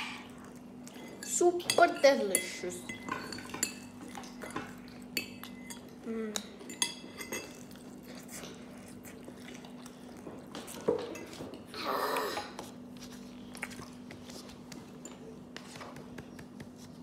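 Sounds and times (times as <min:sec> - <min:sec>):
chewing fried chicken: 0:07.0 - 0:15.5.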